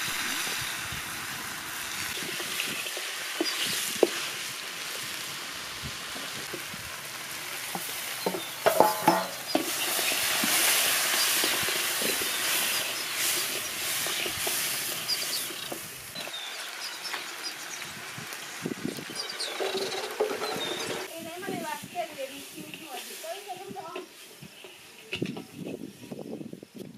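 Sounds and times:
meat sizzling in a pot: 0.0 - 26.8
wooden spoon stirring: 7.6 - 16.3
sharp knocks: 8.3 - 9.4.

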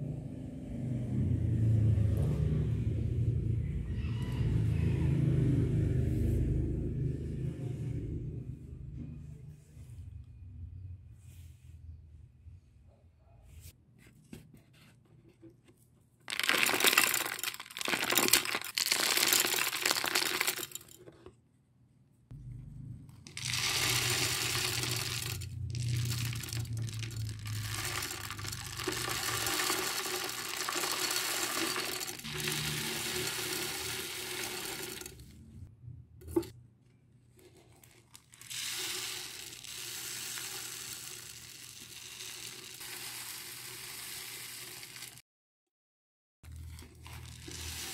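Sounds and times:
granules rattling onto glass: 16.3 - 21.0, 23.3 - 35.2.

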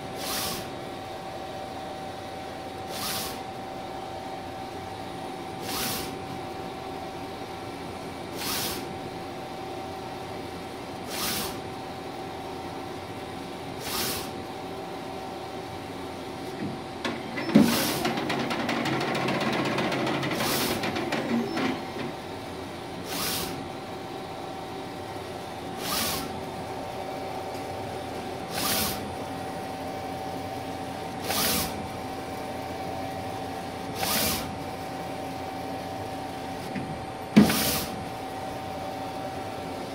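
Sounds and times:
busy printer mechanical noise: 0.0 - 39.9
printer hum: 0.0 - 39.9
printer carriage swishing: 16.6 - 22.2.

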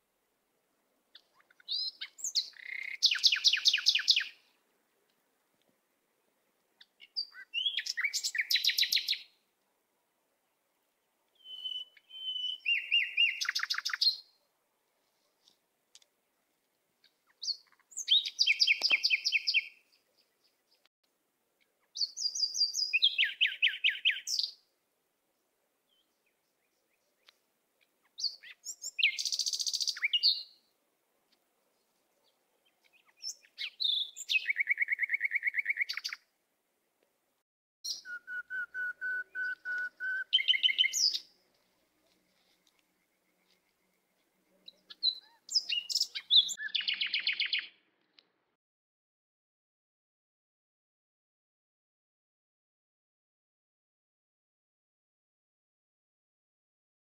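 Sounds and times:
songbird trilling: 1.4 - 4.4, 6.8 - 9.2, 11.4 - 14.2, 28.1 - 30.5, 32.9 - 36.2, 37.9 - 41.3, 44.7 - 47.7.

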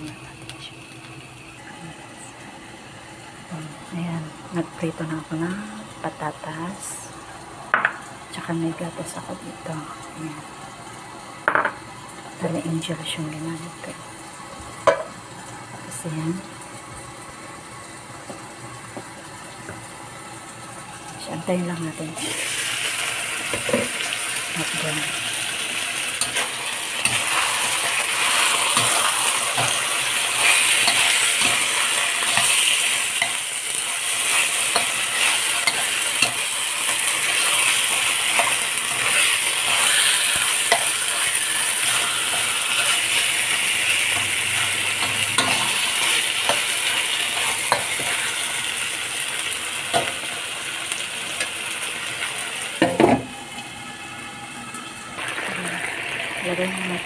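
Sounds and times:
chicken sizzling in wok: 0.0 - 57.0
metal spatula scraping pan: 44.1 - 46.7.

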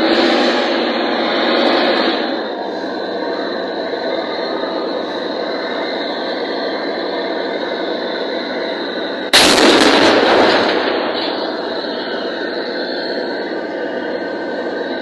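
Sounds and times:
tank engine and tracks: 0.0 - 15.0
heavy gunfire blast: 9.3 - 11.8.

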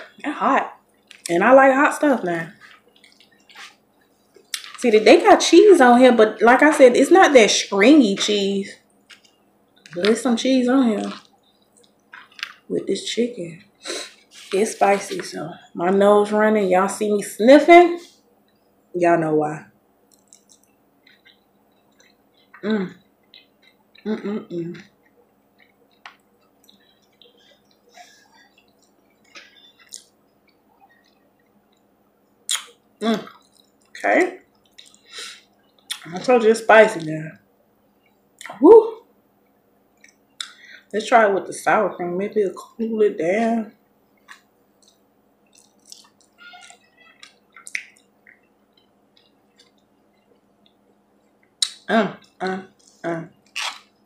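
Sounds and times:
soft wet chewing: 0.8 - 1.3, 2.5 - 4.8, 8.8 - 10.1, 11.0 - 12.7, 20.0 - 24.2, 24.8 - 36.2, 39.4 - 40.6, 43.8 - 54.0.

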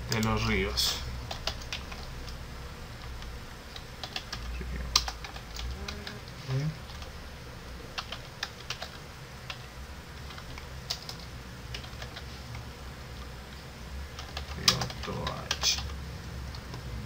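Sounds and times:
keyboard typing: 1.2 - 2.4, 3.0 - 7.1, 8.0 - 12.6, 14.1 - 16.8.

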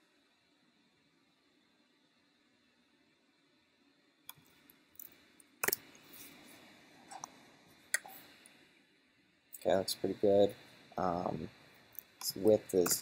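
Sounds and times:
keyboard and mouse clicks: 4.3 - 5.9.

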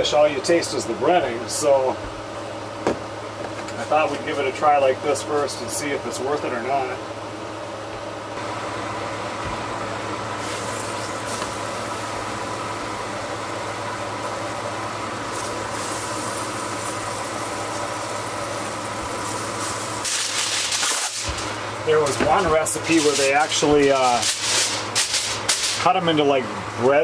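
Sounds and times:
mushrooms sizzling in a pan: 15.2 - 21.3.

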